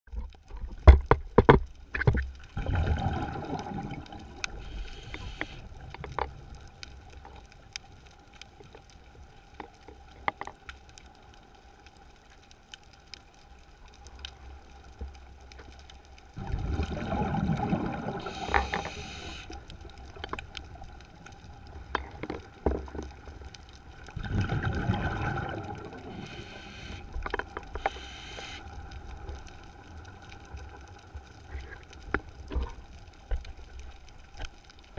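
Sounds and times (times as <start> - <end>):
exhaled bubbles rumbling: 2.0 - 4.7, 16.4 - 18.7, 19.6 - 26.4
regulator hiss: 4.5 - 5.7, 18.2 - 19.6, 26.1 - 28.8.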